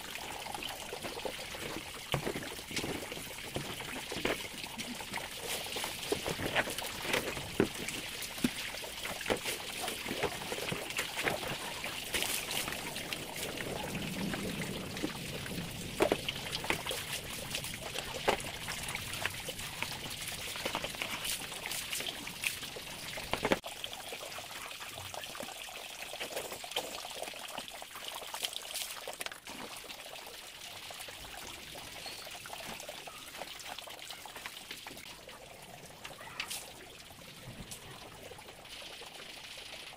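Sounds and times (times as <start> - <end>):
water sloshing: 0.0 - 23.6
water pouring and splashing: 0.0 - 39.9
plastic knocking on plastic: 23.3 - 23.6.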